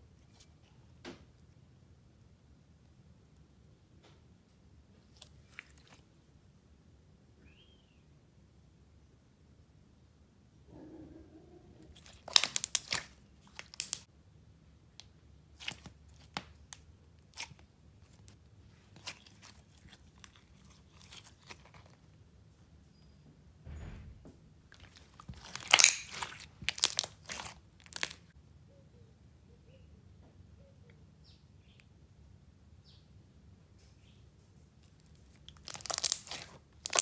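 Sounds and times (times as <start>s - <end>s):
slime squished by hand: 11.9s - 14.0s, 15.6s - 22.0s, 24.8s - 28.3s, 35.1s - 37.0s.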